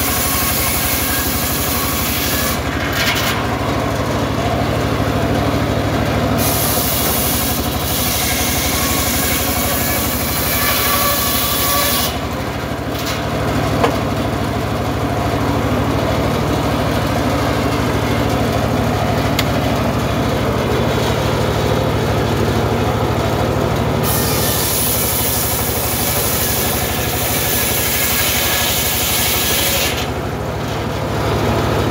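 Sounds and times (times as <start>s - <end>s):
saw blade ripping through wood: 0.0s - 3.5s, 6.4s - 12.2s, 24.0s - 30.1s
circular saw engine running: 0.0s - 31.9s.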